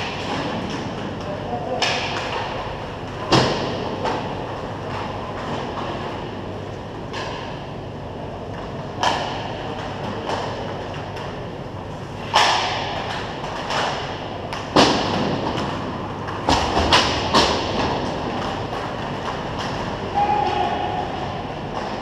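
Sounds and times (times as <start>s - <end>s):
hockey sticks and puck knocking: 0.0s - 6.1s, 8.6s - 11.4s, 12.2s - 22.0s.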